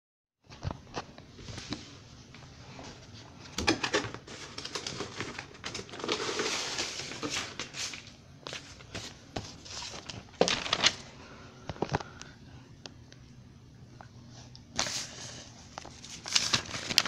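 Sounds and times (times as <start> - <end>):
plastic packaging rustling: 3.7 - 12.3, 14.8 - 17.0.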